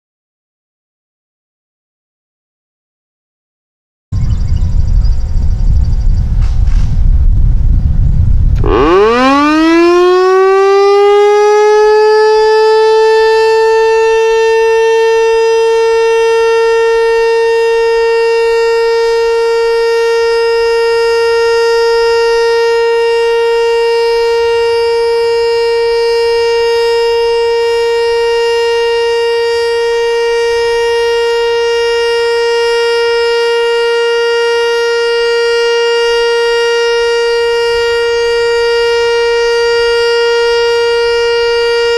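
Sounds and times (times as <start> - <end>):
warning siren wailing: 8.0 - 41.9.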